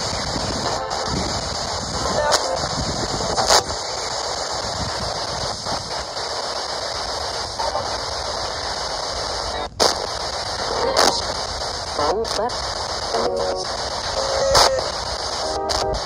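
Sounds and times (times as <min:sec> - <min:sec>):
brief radio blips: 0:00.0 - 0:16.0
radio static sweeping: 0:00.0 - 0:16.0.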